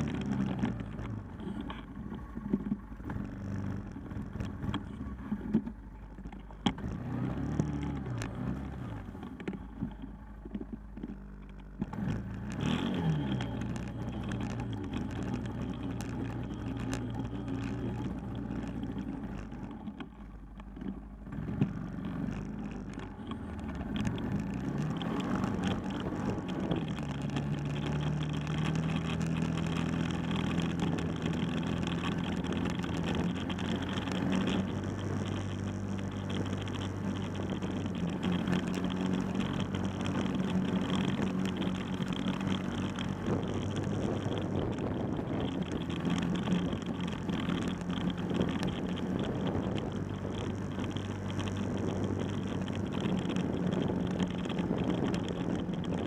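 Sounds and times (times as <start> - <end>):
quad bike engine revving: 0.0 - 5.7, 6.6 - 20.1, 20.8 - 56.0.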